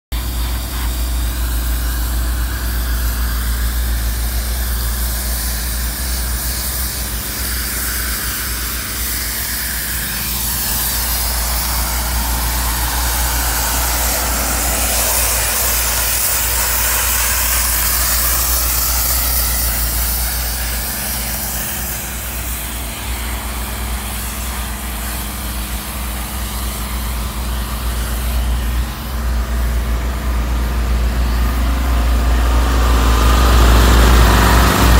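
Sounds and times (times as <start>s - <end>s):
engine low hum: 0.1s - 34.9s
steam hissing: 0.1s - 34.9s.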